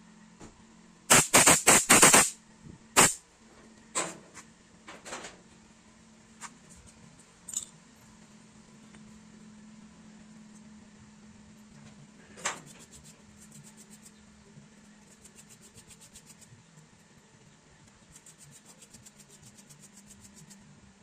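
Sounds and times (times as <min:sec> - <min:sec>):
aerosol spray hissing: 0:01.1 - 0:02.3.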